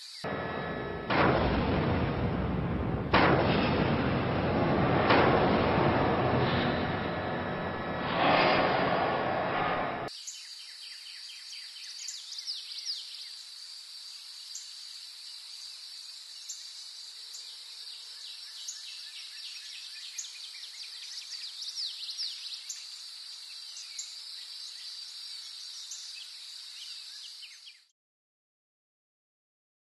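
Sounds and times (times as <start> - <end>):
loud rushing noise: 0.3 - 10.1
high insect drone: 13.1 - 18.6.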